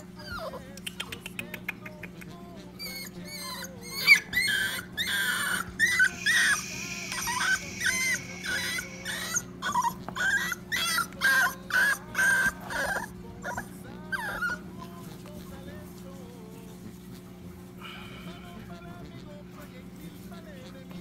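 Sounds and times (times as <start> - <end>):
puppy yelping: 0.0 - 1.2, 2.2 - 15.2.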